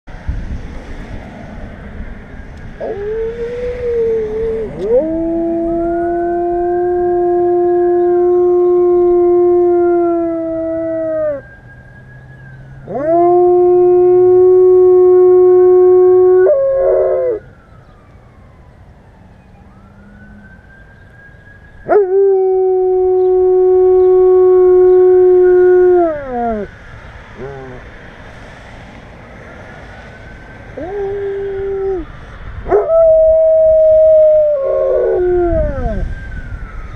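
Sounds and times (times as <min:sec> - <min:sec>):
dog howling: 0:02.8 - 0:11.4, 0:27.4 - 0:27.8, 0:30.8 - 0:32.1, 0:32.7 - 0:36.0.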